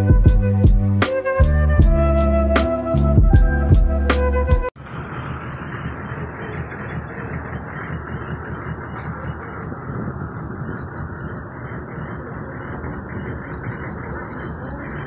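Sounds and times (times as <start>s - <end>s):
diesel engine idling: 4.8s - 15.0s.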